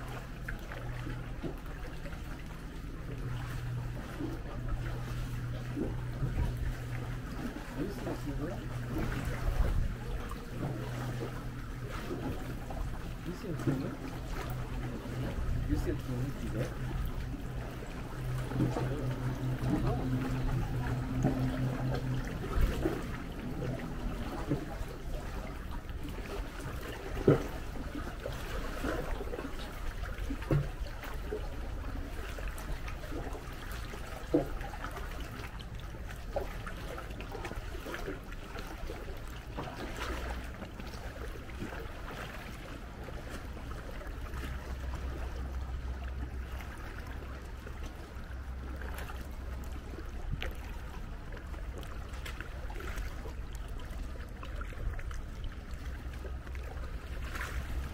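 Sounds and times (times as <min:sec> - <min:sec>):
low rumble: 0:00.0 - 0:28.2
low steady hum: 0:00.0 - 0:57.9
water lapping and trickling: 0:00.0 - 0:57.9
water splashes: 0:00.0 - 0:57.9.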